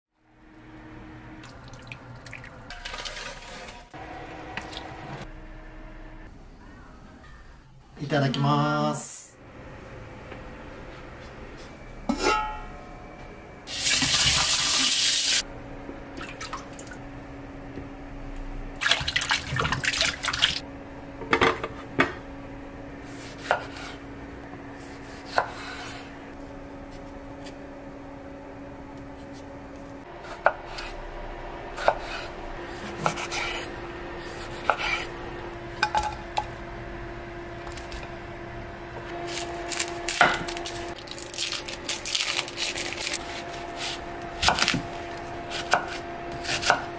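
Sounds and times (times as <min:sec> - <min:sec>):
pot lid clanking: 0:12.1 - 0:12.6
water running: 0:18.8 - 0:20.6
knife chopping on cutting board: 0:23.2 - 0:24.0, 0:24.8 - 0:26.0, 0:30.2 - 0:31.0, 0:31.8 - 0:33.6, 0:34.2 - 0:35.1, 0:43.8 - 0:44.9, 0:45.5 - 0:46.9.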